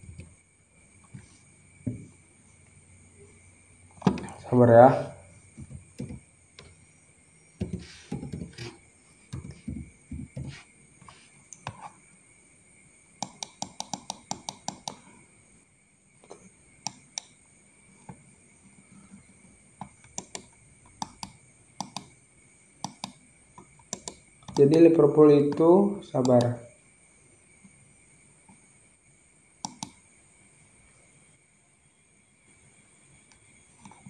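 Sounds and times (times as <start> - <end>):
keyboard key clicks: 13.2 - 15.0.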